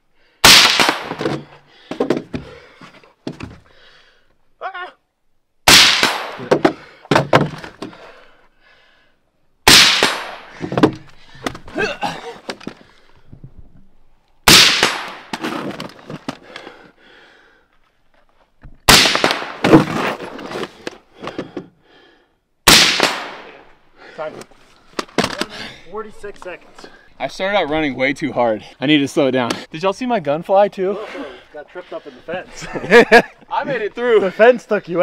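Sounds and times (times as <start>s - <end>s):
gunshot echo: 0.4s - 1.3s, 5.7s - 6.5s, 9.7s - 10.5s, 14.5s - 15.3s, 18.9s - 19.7s, 22.7s - 23.6s
loud rifle shots: 0.4s - 1.3s, 5.7s - 6.5s, 9.7s - 10.5s, 14.5s - 15.3s, 18.9s - 19.7s, 22.7s - 23.6s
quieter sharp cracks: 0.4s - 2.1s, 5.6s - 7.9s, 9.6s - 11.6s, 14.3s - 16.7s, 18.8s - 21.4s, 22.6s - 25.6s.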